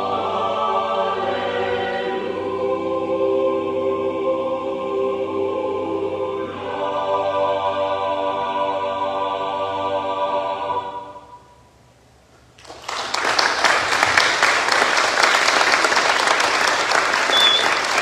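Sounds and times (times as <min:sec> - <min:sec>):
choir holding a chord: 0:00.0 - 0:11.6
audience applause: 0:12.6 - 0:18.0.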